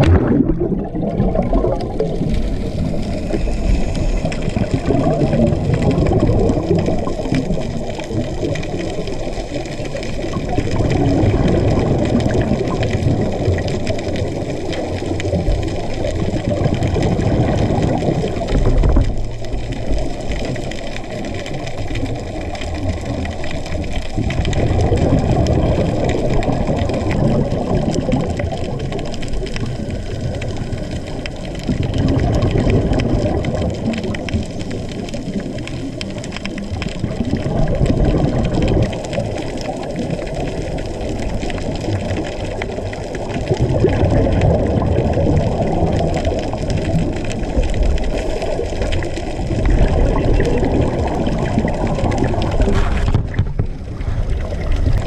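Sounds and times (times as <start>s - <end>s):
diver's exhaled bubbles: 0.0s - 55.0s
underwater wash: 0.0s - 55.0s.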